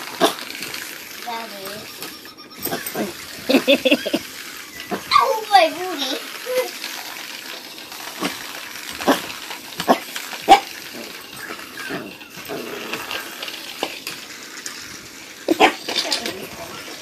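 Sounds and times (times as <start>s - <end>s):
puppy making sharp noises: 15.5s - 16.0s.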